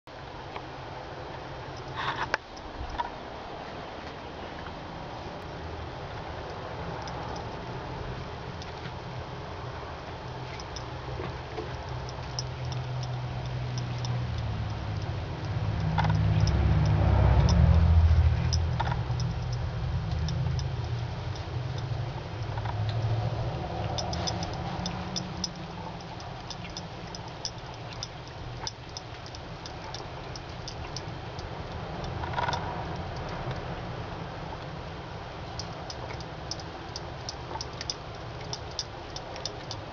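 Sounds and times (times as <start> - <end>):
low rumble: 11.8 - 28.7.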